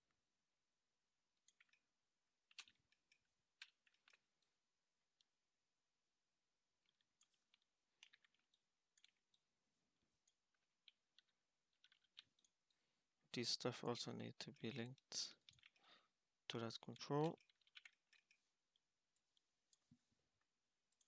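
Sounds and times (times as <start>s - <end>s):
computer mouse and keyboard clicking: 1.4s - 5.3s, 6.8s - 9.4s, 10.2s - 12.8s, 14.5s - 15.8s, 16.5s - 20.0s.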